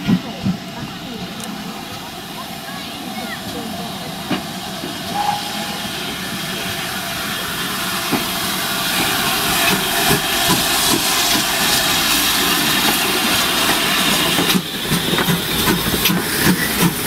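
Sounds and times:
train clanks and knocks: 0:00.0 - 0:17.0
steam hissing: 0:00.4 - 0:17.0.

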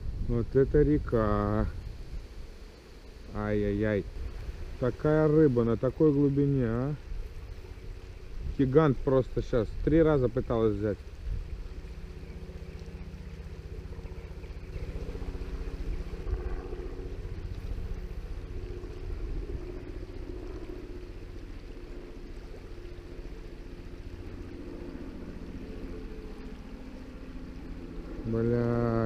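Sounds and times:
wind rumble on microphone: 0:00.0 - 0:29.0
river water rushing: 0:10.5 - 0:28.2.

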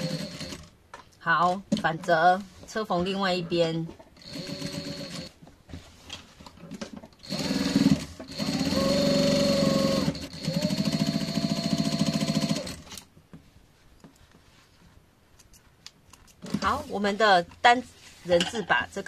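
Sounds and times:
sewing machine stitching: 0:00.0 - 0:00.7, 0:04.2 - 0:05.3, 0:07.2 - 0:13.0.

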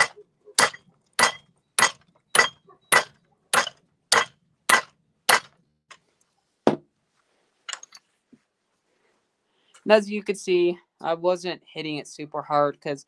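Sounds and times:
hammer striking steel punch: 0:00.0 - 0:05.6.

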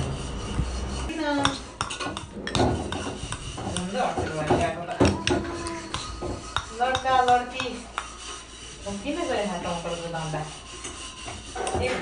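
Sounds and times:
spoons clinking against bowls: 0:01.3 - 0:08.5.

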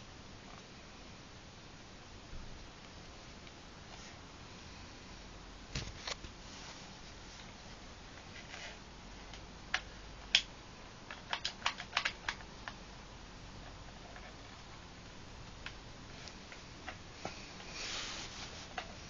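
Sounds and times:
plastic toy blaster clicks and taps: 0:11.1 - 0:12.8.

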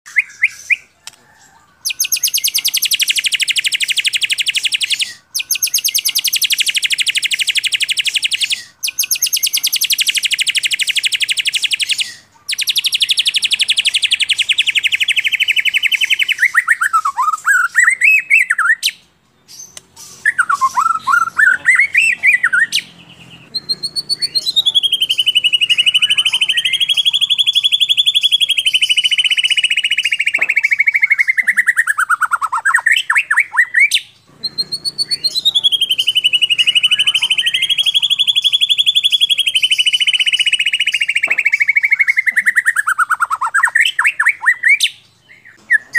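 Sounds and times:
songbird trills and whistles: 0:00.1 - 0:45.9.

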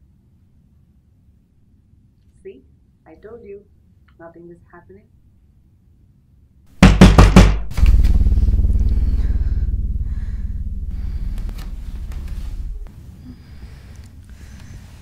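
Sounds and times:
loud bangs: 0:06.8 - 0:13.0
low rumbling drone: 0:07.7 - 0:14.8.

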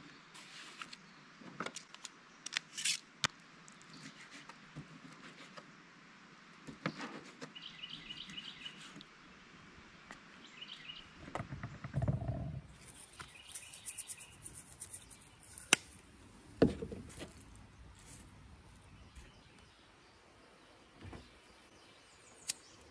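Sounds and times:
small birds chirping: 0:06.8 - 0:09.0, 0:10.2 - 0:16.0, 0:17.4 - 0:22.9.

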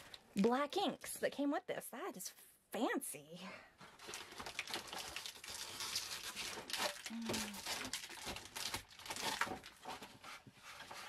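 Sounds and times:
plastic packaging crinkling: 0:03.9 - 0:10.2
person humming: 0:07.0 - 0:07.6.

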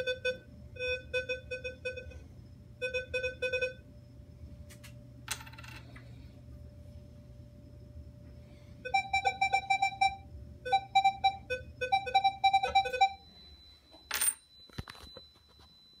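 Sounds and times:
metal detector beeps: 0:08.9 - 0:16.0.

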